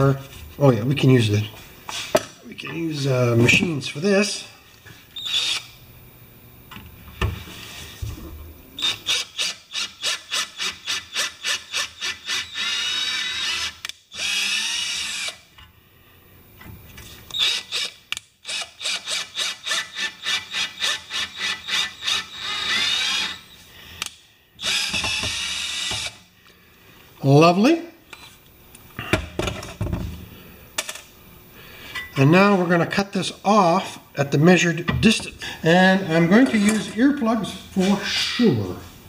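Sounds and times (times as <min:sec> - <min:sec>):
cordless drill motor pulsing: 0:05.2 - 0:05.7, 0:08.8 - 0:15.4, 0:17.3 - 0:23.6, 0:24.6 - 0:26.2.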